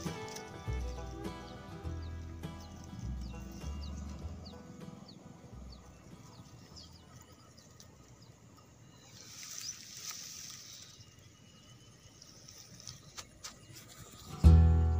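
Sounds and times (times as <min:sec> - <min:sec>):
rustling: 0:09.1 - 0:11.2.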